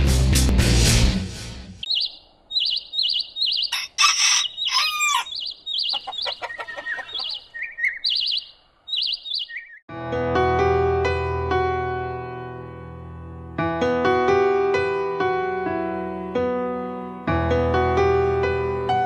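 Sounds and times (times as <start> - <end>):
small bird chirping: 1.8 - 9.9
rooster crowing: 3.7 - 5.4
soft piano music: 9.9 - 19.0.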